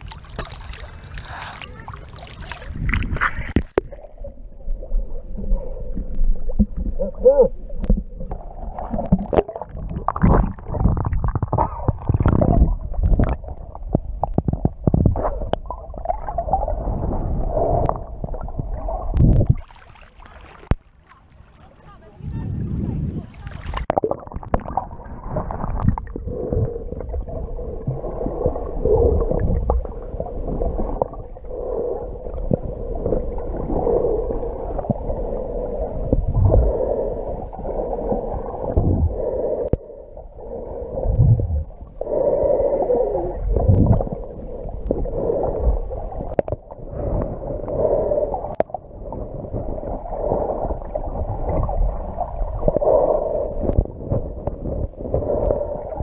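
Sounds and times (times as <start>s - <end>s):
underwater water sloshing: 0.0s - 56.0s.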